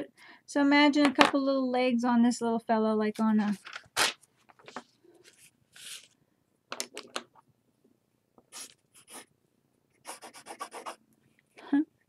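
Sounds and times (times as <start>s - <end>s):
paper rustling: 3.4s - 6.2s.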